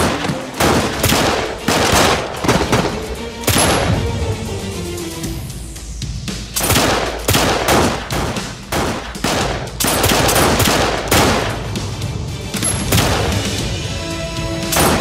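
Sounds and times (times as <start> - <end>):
handguns firing: 0.0 - 4.0, 6.6 - 11.7, 12.6 - 13.6, 14.8 - 15.0.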